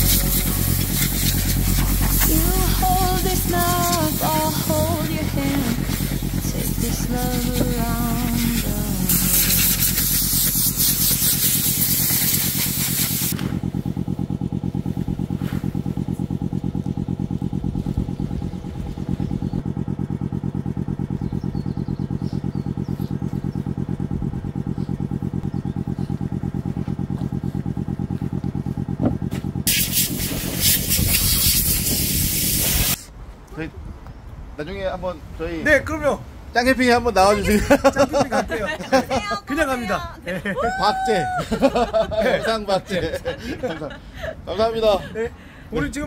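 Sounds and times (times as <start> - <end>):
air blow gun hissing: 0.0 - 13.7, 29.7 - 33.1
air compressor motor chugging: 0.0 - 33.0.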